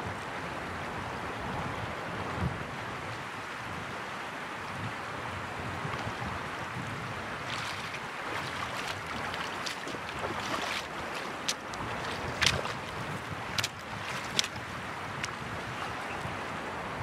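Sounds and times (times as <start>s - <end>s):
river rushing over stones: 0.2s - 17.0s
boots splashing through water: 7.3s - 16.1s.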